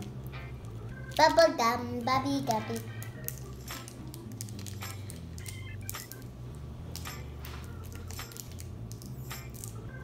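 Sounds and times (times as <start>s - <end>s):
steady low hum: 0.0s - 10.0s
plastic wrappers crinkling: 2.4s - 6.2s, 6.9s - 9.8s.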